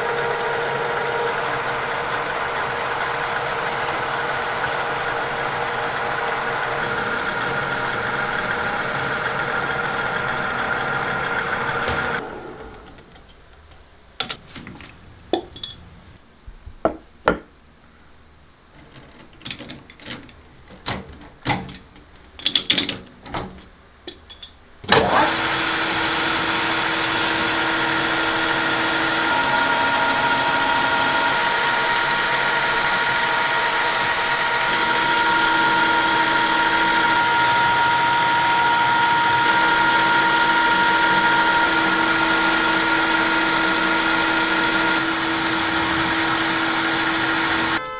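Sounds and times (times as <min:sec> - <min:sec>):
metal lathe running: 0:00.0 - 0:12.3, 0:24.9 - 0:47.9
tool hissing cutting metal: 0:01.4 - 0:10.5, 0:25.2 - 0:47.8.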